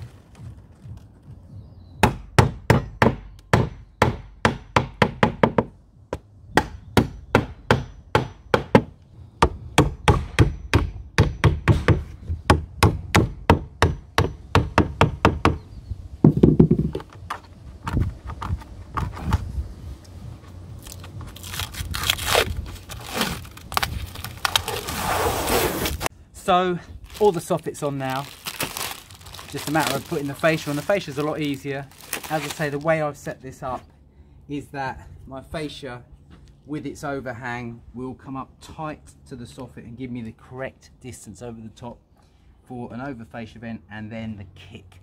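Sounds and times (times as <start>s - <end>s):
rustling: 16.8s - 26.1s, 27.0s - 32.9s.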